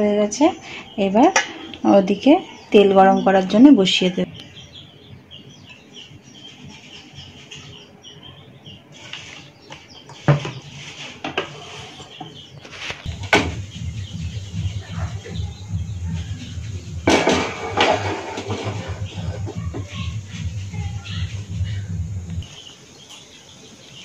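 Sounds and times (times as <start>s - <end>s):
birds chirping: 0.0s - 24.0s
frying pan knock: 17.0s - 18.7s.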